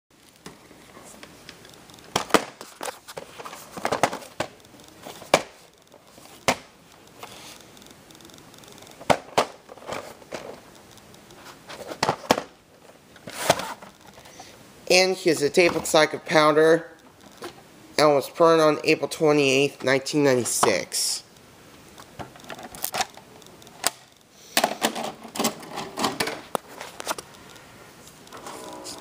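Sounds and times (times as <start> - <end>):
tape cassette clicks: 3.8 - 11.4.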